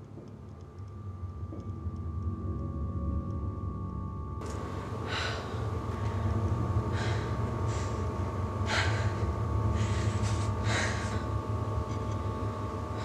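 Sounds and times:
steady low hum: 0:00.0 - 0:13.0
woman breathing hard: 0:04.9 - 0:11.8.

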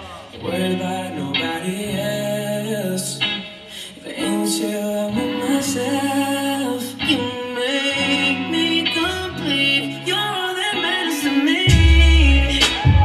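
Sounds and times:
guitar: 0:00.0 - 0:13.0
person singing: 0:00.0 - 0:13.0
sustained bass notes: 0:11.7 - 0:13.0.

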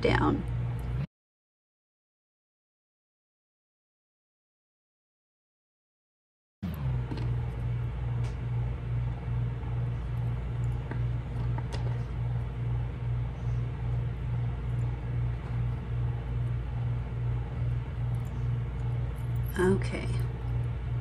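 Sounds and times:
pulsing mechanical hum: 0:00.0 - 0:01.1, 0:06.6 - 0:21.0.

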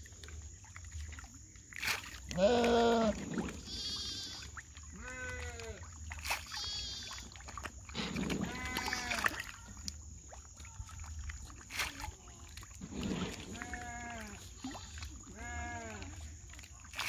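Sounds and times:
fish splashing and slurping: 0:00.0 - 0:17.0
short bleats: 0:02.3 - 0:05.8, 0:06.5 - 0:07.2, 0:08.4 - 0:09.4, 0:13.2 - 0:16.2.

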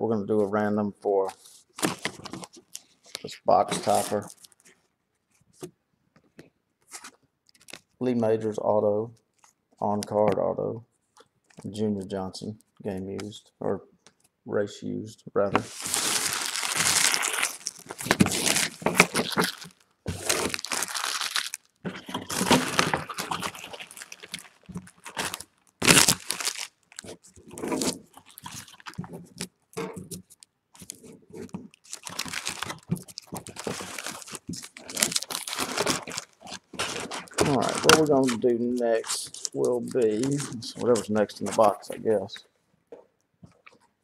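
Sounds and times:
wrappers crinkling: 0:01.8 - 0:04.9, 0:06.9 - 0:08.0, 0:15.7 - 0:41.9.

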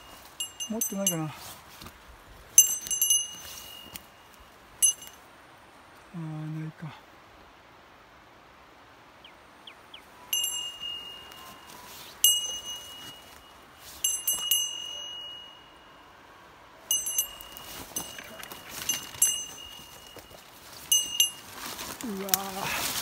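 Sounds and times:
small metal bell jingling: 0:00.0 - 0:01.4, 0:02.6 - 0:05.2, 0:10.3 - 0:16.0, 0:16.9 - 0:22.6
footsteps through leaves: 0:00.0 - 0:05.2, 0:10.6 - 0:14.8, 0:17.2 - 0:23.0.

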